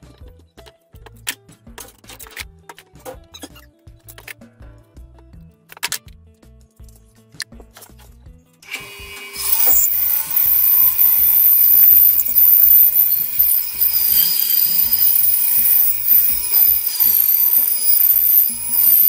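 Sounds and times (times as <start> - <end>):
background music: 0.0 - 12.5
bandsaw cutting wood: 8.6 - 19.0.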